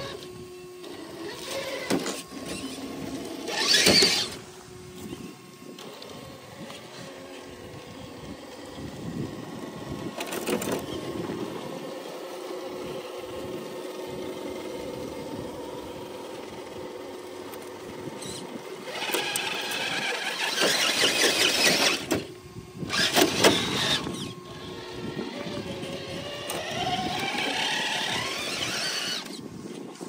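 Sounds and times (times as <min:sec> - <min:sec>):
electric motor and drivetrain whining: 0:00.0 - 0:30.0
harsh squealing: 0:03.5 - 0:04.4.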